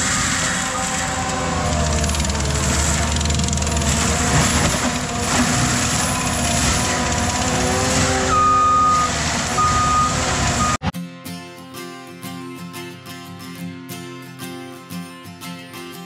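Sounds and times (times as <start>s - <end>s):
reversing alarm beeping: 0.0s - 2.5s, 8.1s - 10.9s
diesel loader and mulcher din: 0.0s - 10.9s.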